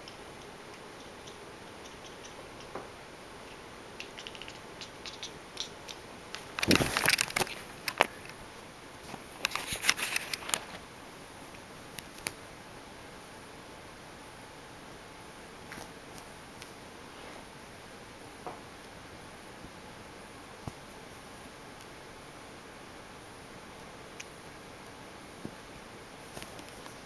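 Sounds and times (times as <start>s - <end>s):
faint steady hiss: 0.0s - 27.0s
rustling and scraping: 6.3s - 10.8s.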